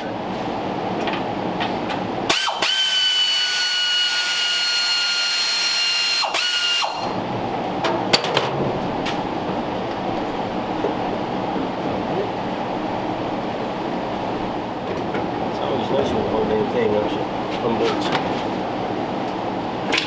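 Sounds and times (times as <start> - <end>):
power tool whining: 2.3 - 7.2.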